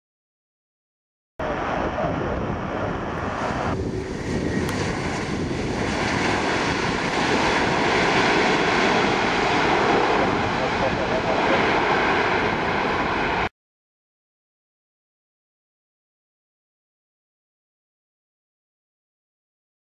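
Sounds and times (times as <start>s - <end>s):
jet engines rushing: 1.4s - 13.5s
wind on microphone: 1.4s - 13.5s.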